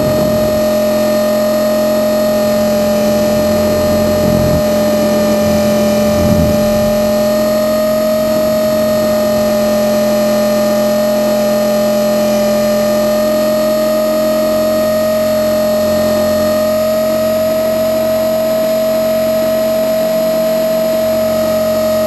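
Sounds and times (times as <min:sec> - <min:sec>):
wind rumble on microphone: 0:00.0 - 0:10.6
rc helicopter motor whine: 0:00.0 - 0:13.7.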